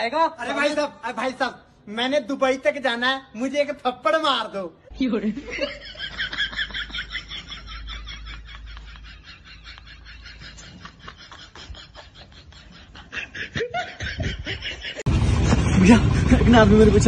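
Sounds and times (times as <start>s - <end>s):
low hum: 14.3s - 17.0s.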